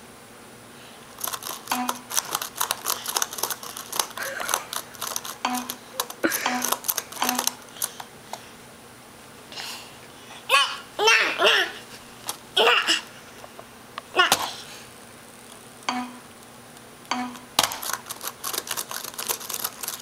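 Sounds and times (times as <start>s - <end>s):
laptop keyboard keys clattering: 1.2s - 8.0s, 17.6s - 20.0s.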